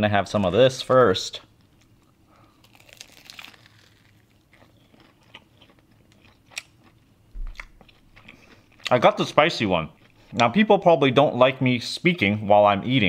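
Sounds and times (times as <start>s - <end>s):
crunching fried chicken crust: 1.8s - 10.6s.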